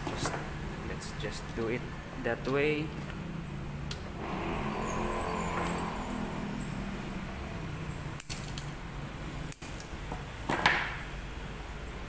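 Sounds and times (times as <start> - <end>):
low motor hum: 3.1 - 8.2.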